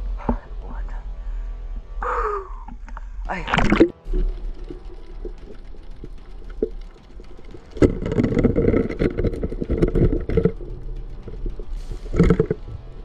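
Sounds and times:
low steady hum: 0.0s - 13.0s
underwater crackling and rumbling: 2.6s - 13.0s
spear striking fish underwater: 2.7s - 13.0s.

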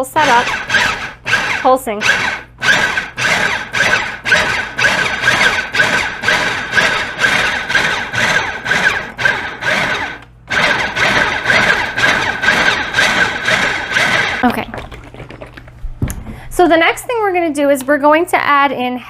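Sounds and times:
food processor pulsing: 0.0s - 14.6s.

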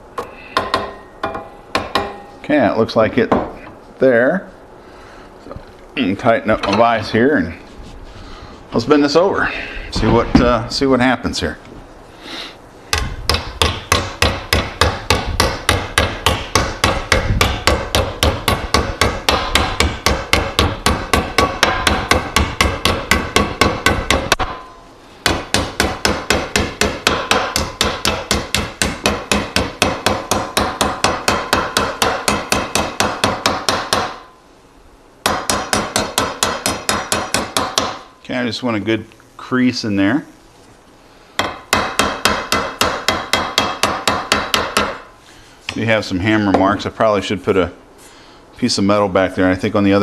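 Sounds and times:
hammer beating sheet metal: 0.6s - 2.4s, 12.9s - 34.3s, 35.2s - 38.1s, 41.4s - 45.1s.

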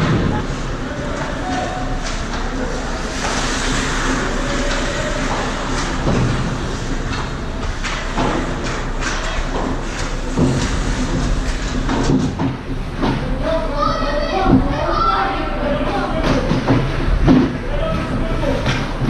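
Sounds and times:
hockey sticks and puck clacking: 1.0s - 13.3s, 15.8s - 19.0s
skate blades scraping ice: 1.4s - 11.8s.

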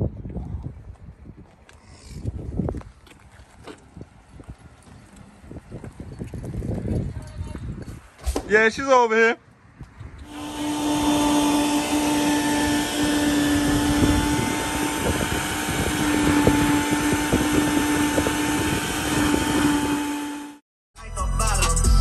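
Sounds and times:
shop vacuum motor whine: 10.2s - 20.6s.

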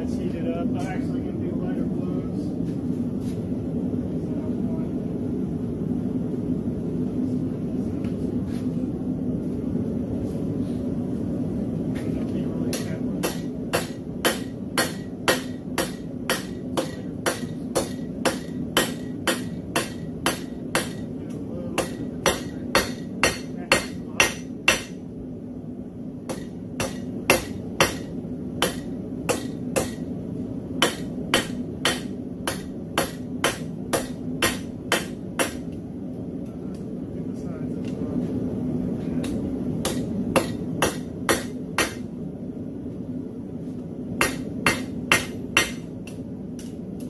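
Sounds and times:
hammer striking metal on anvil: 12.7s - 25.0s, 26.3s - 30.1s, 30.8s - 35.7s, 39.2s - 42.1s, 44.2s - 46.8s.

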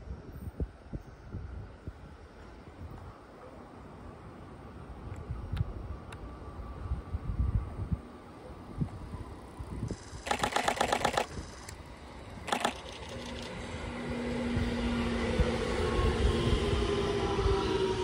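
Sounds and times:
electric train passing: 3.8s - 18.0s
camera shutters firing in bursts: 9.9s - 11.8s, 12.4s - 13.5s.

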